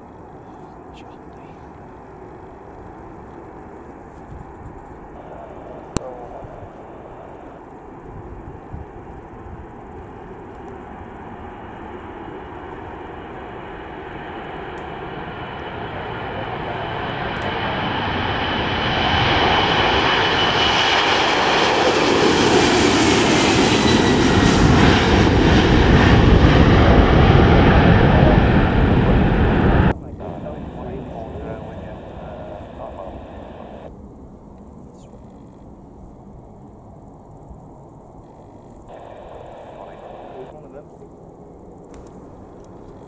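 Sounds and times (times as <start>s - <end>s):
high fan whine: 0.0s - 13.0s, 28.0s - 34.2s, 37.0s - 43.0s
jet engines at takeoff power: 0.0s - 43.0s.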